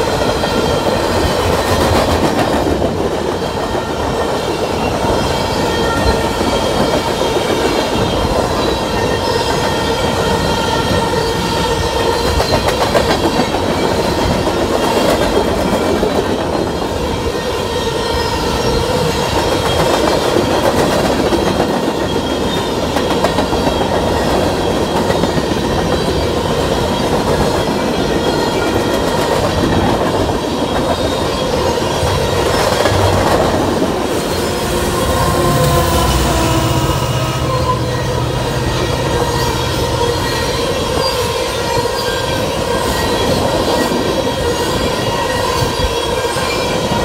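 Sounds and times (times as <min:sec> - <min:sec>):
train wheels rumbling on rails: 0:00.0 - 0:47.0.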